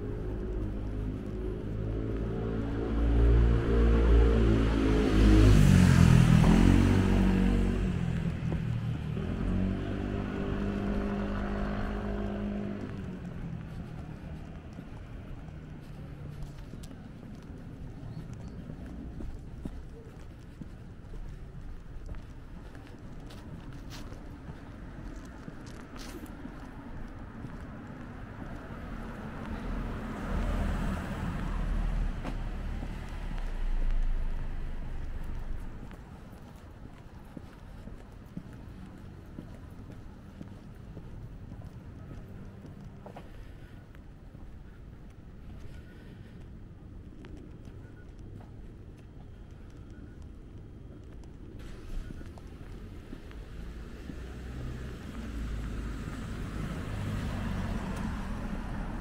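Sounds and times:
vehicle engine passing by: 0.0s - 15.0s, 27.5s - 36.0s, 51.6s - 59.0s.

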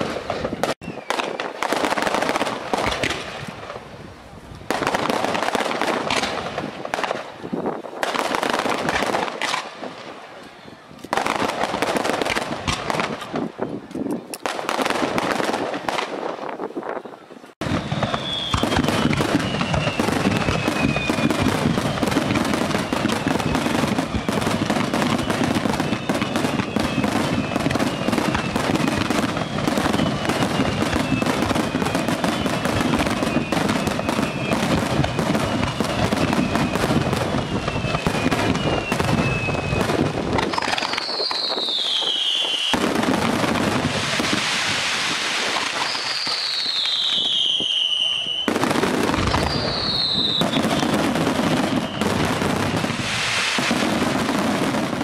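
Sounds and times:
falling firework whistles: 0.0s - 3.6s, 17.6s - 55.0s
fireworks crackling and popping: 0.0s - 55.0s.

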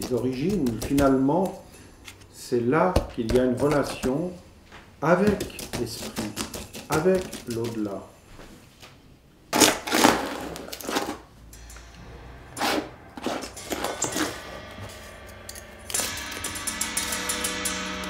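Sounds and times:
tool scraping paint on canvas: 5.1s - 8.0s
steady ringing tone: 11.4s - 18.0s.

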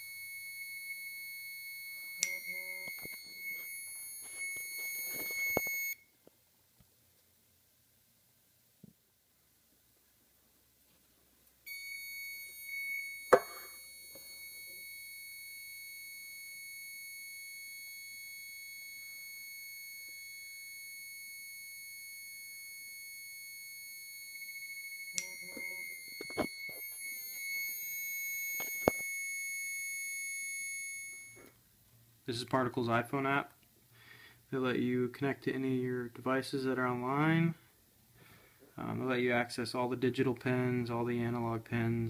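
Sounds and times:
high-pitched alarm tone: 0.0s - 6.0s, 11.7s - 31.5s.

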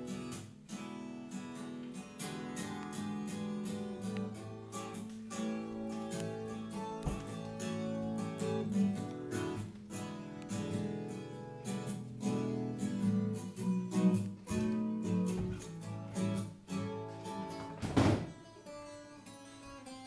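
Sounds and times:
acoustic guitar strumming: 0.0s - 20.0s.

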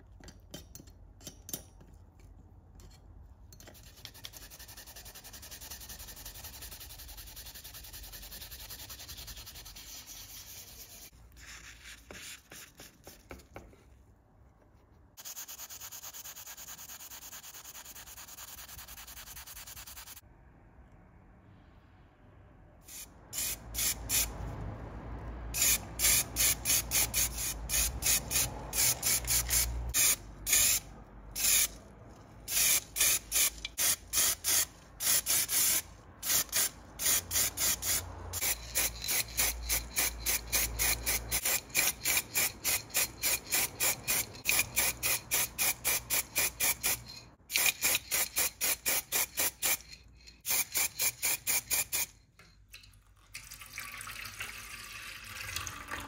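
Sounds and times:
spray paint hissing in bursts: 15.2s - 20.2s, 22.8s - 24.3s, 25.5s - 31.7s, 32.5s - 52.1s.

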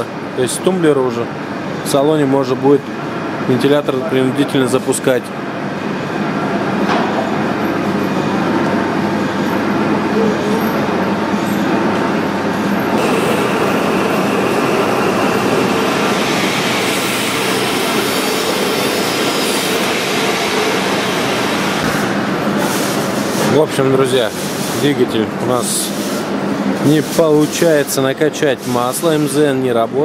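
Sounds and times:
machinery running: 5.6s - 27.8s.

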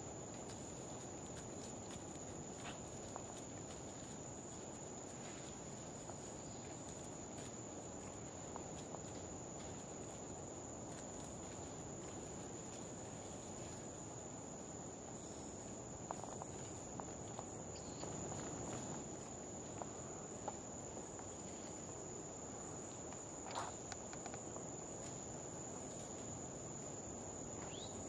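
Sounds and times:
insects droning: 0.0s - 28.0s
faint clicks and rustles: 15.2s - 26.4s.

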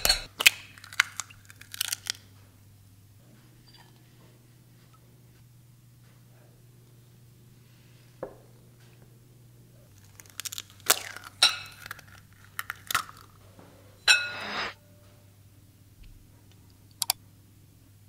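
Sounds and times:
metal clinking against glass bowls: 0.0s - 0.3s.

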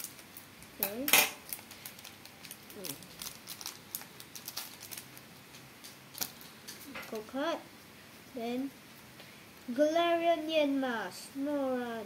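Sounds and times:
wrapper crinkling: 0.0s - 7.3s.

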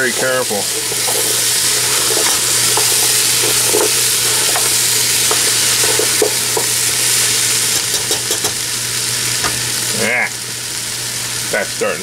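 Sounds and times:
meat and vegetables sizzling in pot: 0.0s - 12.0s
spatula scraping pot: 0.3s - 6.8s.

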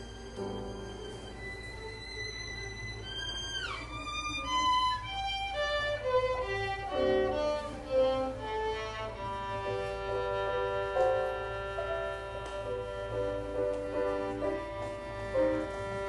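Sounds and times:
piano accompaniment: 0.0s - 4.0s, 4.6s - 16.0s
violin: 0.0s - 16.0s.

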